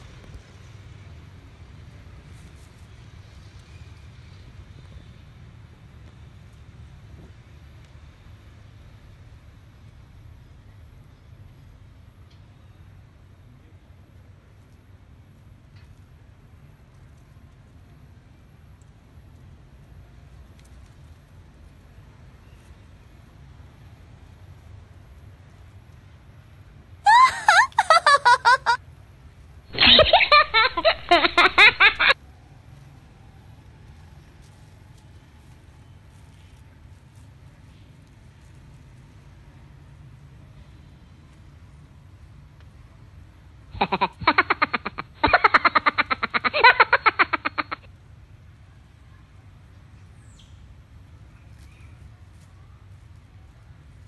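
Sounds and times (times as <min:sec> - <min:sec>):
rapid ha-ha laughter: 0:27.1 - 0:28.8, 0:29.7 - 0:32.2, 0:43.8 - 0:47.9
short giggle: 0:27.1 - 0:28.8, 0:29.7 - 0:32.2, 0:43.8 - 0:47.9.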